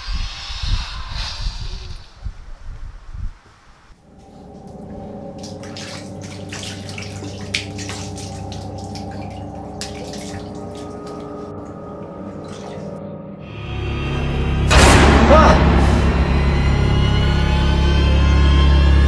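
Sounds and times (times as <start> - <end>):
low hum: 3.9 - 19.0.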